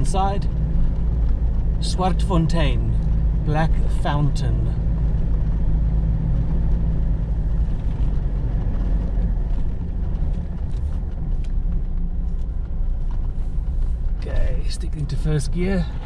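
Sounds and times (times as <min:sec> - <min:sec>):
vehicle engine and tyres rumbling: 0:00.0 - 0:16.0.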